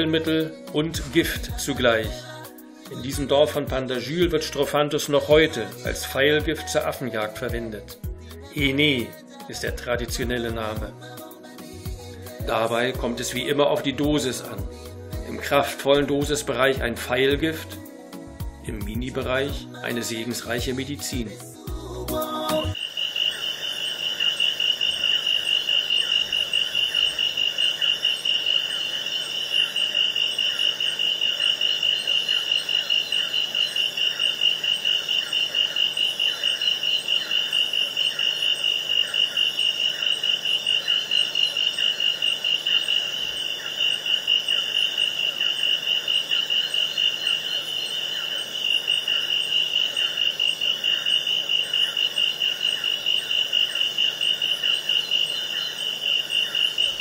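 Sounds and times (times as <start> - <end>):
rainforest animals calling: 22.7 - 57.0.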